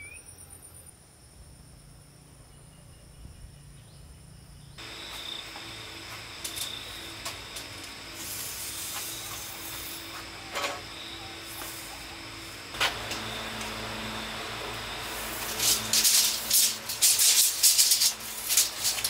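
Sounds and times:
insect chirring: 4.5s - 19.0s
steady hiss: 4.8s - 19.0s.

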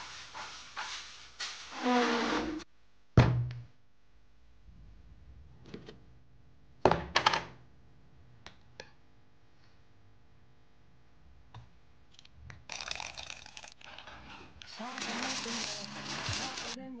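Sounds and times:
water poured into plastic mug: 12.7s - 14.3s.

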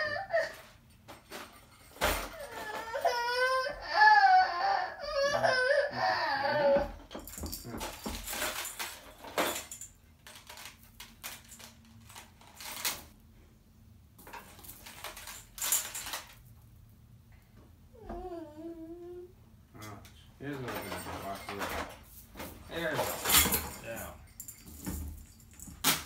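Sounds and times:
plastic toys and beads rattling: 7.2s - 13.1s, 14.2s - 16.5s.

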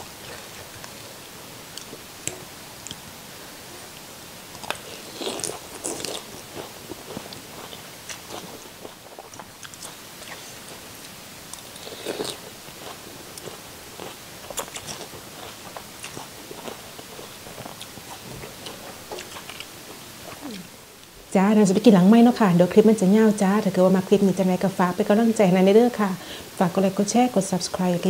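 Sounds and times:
woman chewing: 0.2s - 3.0s, 3.6s - 21.1s.

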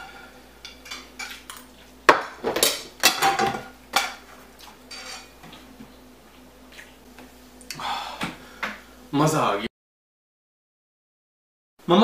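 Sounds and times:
cutlery clattering on plates: 2.4s - 4.3s, 4.9s - 5.3s.

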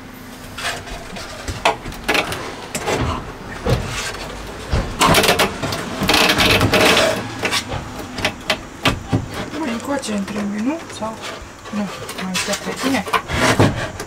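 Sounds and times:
wood rubbing and scraping: 0.0s - 14.0s
wooden shelf knocks and taps: 1.4s - 9.6s.

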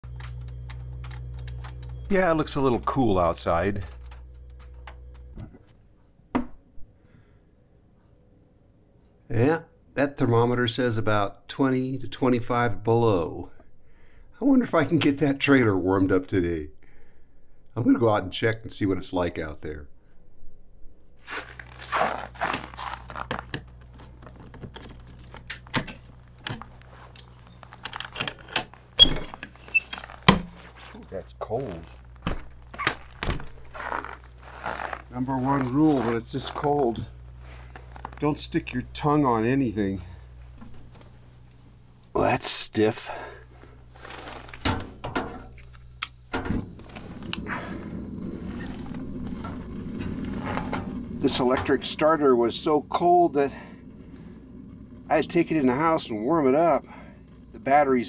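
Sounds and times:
keys jangling: 24.8s - 26.1s, 29.2s - 31.1s
flame hissing: 31.7s - 42.2s, 42.9s - 58.0s.

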